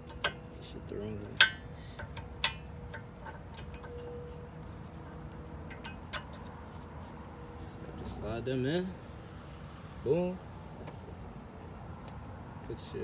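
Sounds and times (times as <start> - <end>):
metallic clicks of brake pads: 0.0 - 7.1, 10.8 - 11.1, 12.0 - 12.8.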